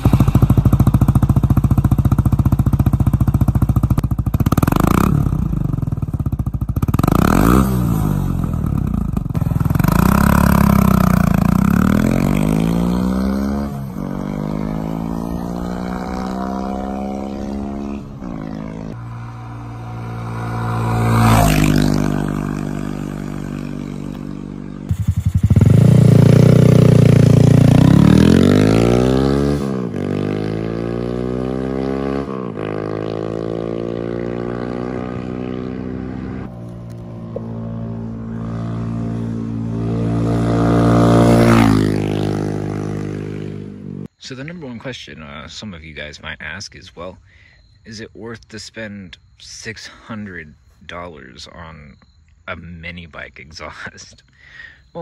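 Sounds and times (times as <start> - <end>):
mini bike engine accelerating: 24.8 - 43.8.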